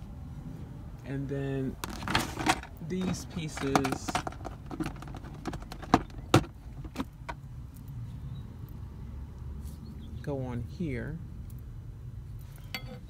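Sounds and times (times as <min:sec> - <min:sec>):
metal pipes knocking together: 0:01.8 - 0:07.1.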